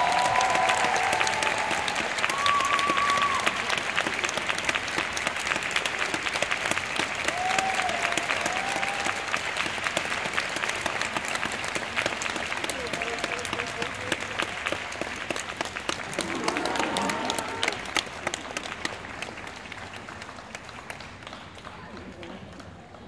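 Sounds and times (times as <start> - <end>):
spectators clapping: 0.0 - 23.0.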